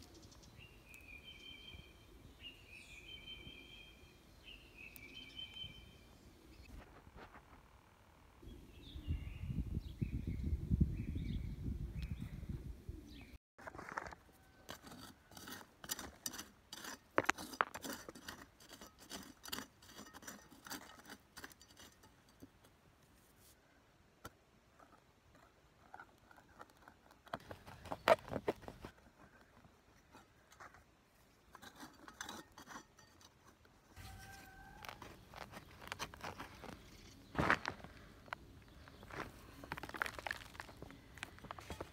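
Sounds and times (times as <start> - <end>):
metal trowel scraping stony soil: 13.7 - 23.6, 29.9 - 37.8, 39.6 - 41.9.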